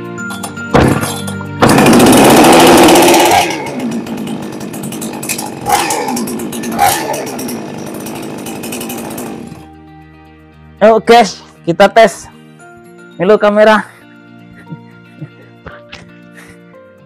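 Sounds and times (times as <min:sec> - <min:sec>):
chainsaw engine running: 0:00.9 - 0:09.7.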